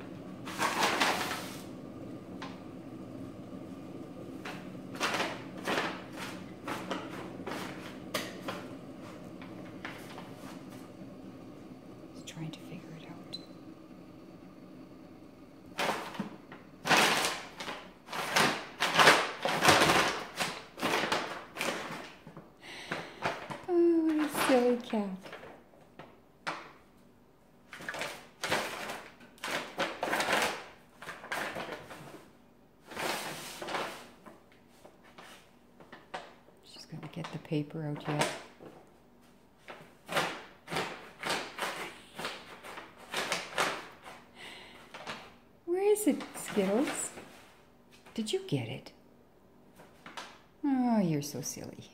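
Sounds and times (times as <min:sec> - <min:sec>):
paper bag crinkling: 0:00.0 - 0:11.4, 0:15.6 - 0:26.7, 0:27.6 - 0:36.3, 0:39.6 - 0:45.4, 0:46.0 - 0:48.2
bag sliding over tile floor: 0:00.0 - 0:12.2, 0:13.5 - 0:25.4, 0:27.7 - 0:35.5.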